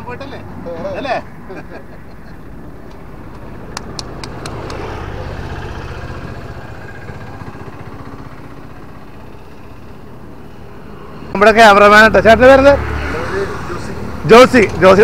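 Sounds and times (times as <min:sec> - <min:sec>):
traffic engine and tyre rumble: 0:00.0 - 0:15.0
sharp clicks: 0:02.8 - 0:04.9.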